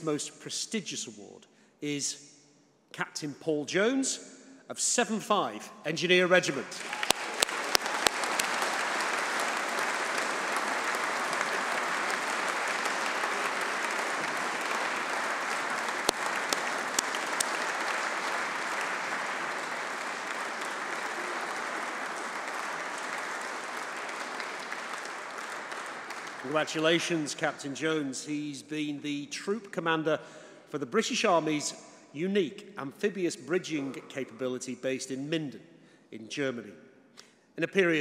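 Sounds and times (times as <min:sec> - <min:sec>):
audience applause: 0:06.8 - 0:27.3.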